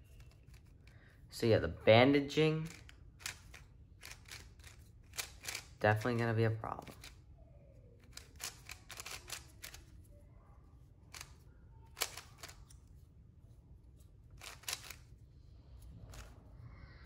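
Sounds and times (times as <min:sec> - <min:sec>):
puzzle cube clicking: 0:02.6 - 0:05.8, 0:06.8 - 0:07.2, 0:08.0 - 0:09.9, 0:11.1 - 0:12.8, 0:14.4 - 0:15.1.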